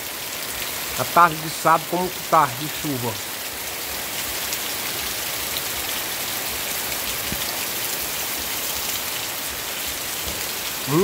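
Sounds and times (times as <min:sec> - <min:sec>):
heavy rain on trees and ground: 0:00.0 - 0:11.0.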